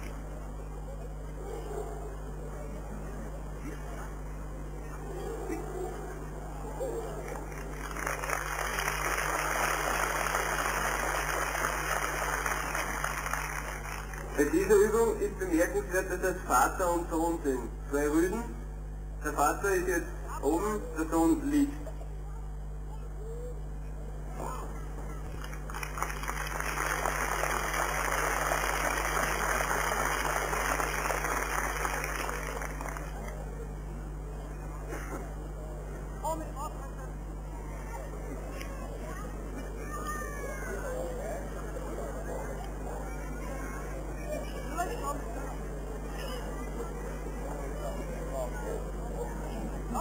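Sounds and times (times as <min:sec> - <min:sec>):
crowd applauding: 0:07.3 - 0:14.9, 0:25.4 - 0:33.4.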